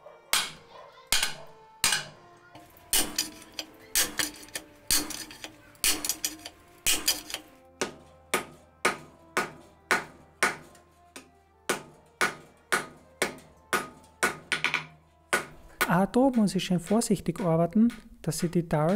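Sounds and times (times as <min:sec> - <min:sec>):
hammer blows ringing on anvil: 0:00.3 - 0:02.2, 0:02.9 - 0:10.7, 0:11.7 - 0:14.5.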